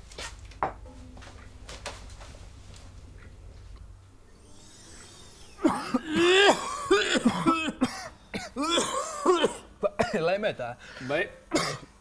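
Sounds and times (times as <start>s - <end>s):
men coughing and spluttering: 5.6s - 10.2s, 11.5s - 12.0s.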